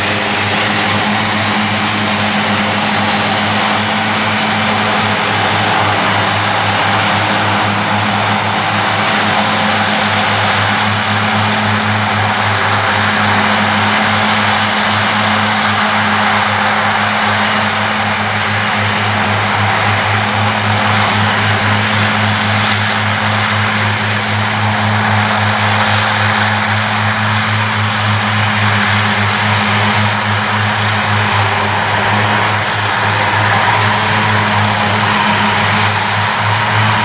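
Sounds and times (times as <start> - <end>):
spinning mower discs whirring: 0.0 - 25.0
mower engine hum: 0.0 - 37.0.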